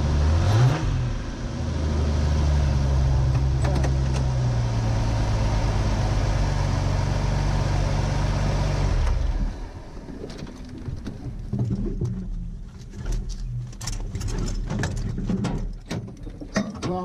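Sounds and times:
engine revving: 0.0s - 9.8s
truck engine idling: 1.1s - 11.5s.

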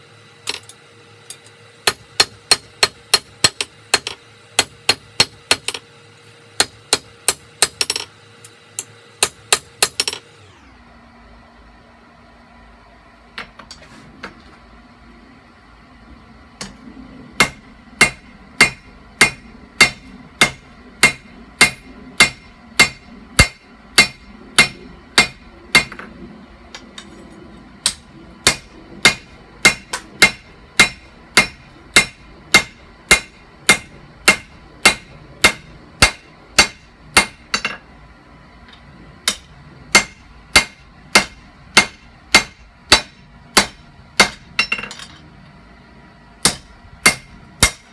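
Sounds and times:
hammer striking metal on anvil: 1.8s - 5.8s, 6.6s - 8.1s, 17.4s - 26.1s, 27.8s - 37.8s, 39.2s - 45.2s, 46.4s - 47.9s.

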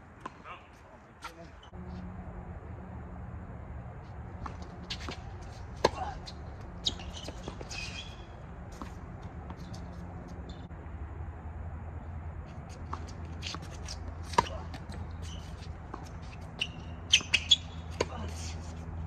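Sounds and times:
steady low hum: 0.0s - 19.0s
racket hitting tennis ball: 4.3s - 10.7s, 12.8s - 18.7s
shoe scuffs on court: 4.4s - 10.6s, 12.5s - 18.9s.

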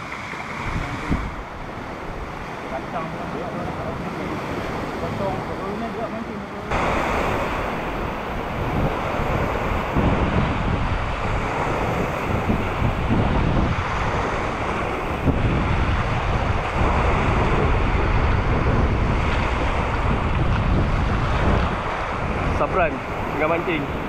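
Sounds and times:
sea waves: 0.0s - 24.0s
wind buffeting microphone: 0.0s - 24.0s.

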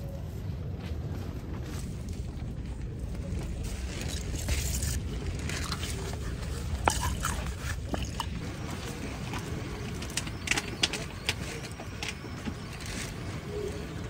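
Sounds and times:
low rumble of wind: 0.0s - 14.0s
wine pouring into plastic glass: 6.8s - 8.4s.

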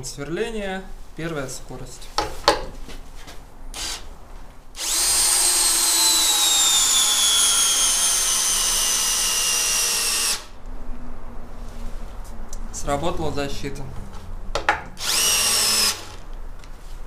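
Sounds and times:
cordless drill whining: 3.8s - 4.0s, 4.8s - 10.6s, 15.0s - 16.3s.

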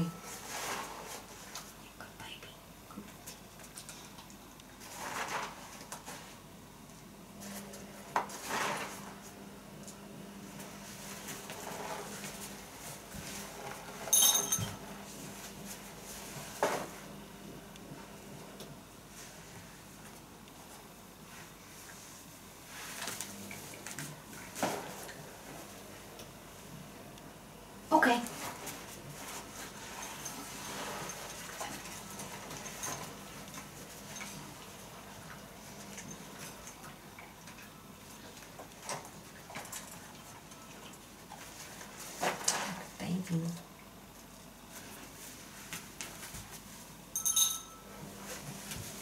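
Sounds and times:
sharp ringing clink: 14.1s - 14.8s, 47.2s - 47.9s
person and dog shuffling on rug: 48.2s - 49.0s.

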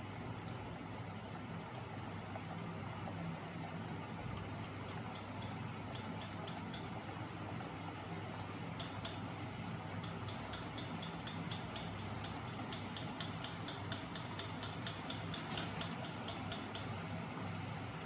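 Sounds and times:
sharp mechanical clicks: 5.0s - 7.0s, 8.3s - 9.3s, 10.0s - 17.0s.

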